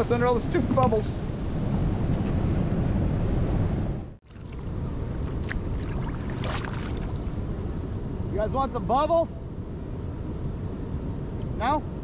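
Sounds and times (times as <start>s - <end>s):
wind buffeting microphone: 0.0s - 12.0s
rushing river water: 4.2s - 7.7s.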